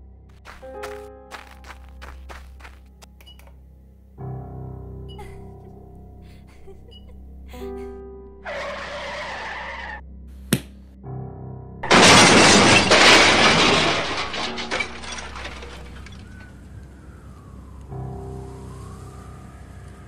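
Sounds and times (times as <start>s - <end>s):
soft music: 0.0s - 11.9s, 16.5s - 20.0s
tyres skidding: 0.3s - 3.5s, 8.4s - 10.0s, 11.8s - 17.5s
car crash with breaking glass: 8.4s - 10.0s, 11.8s - 16.8s
sharp knock: 10.5s - 10.8s
debris clattering: 11.8s - 16.9s.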